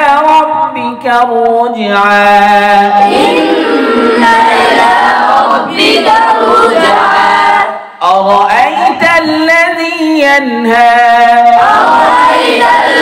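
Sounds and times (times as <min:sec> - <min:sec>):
person reciting a verse: 0:00.0 - 0:05.0, 0:05.6 - 0:13.0
group of voices chanting: 0:02.9 - 0:08.0, 0:11.5 - 0:13.0.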